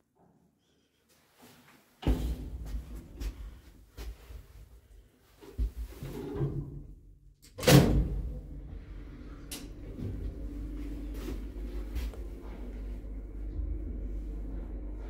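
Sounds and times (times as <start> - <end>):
lift humming: 8.1 - 15.0.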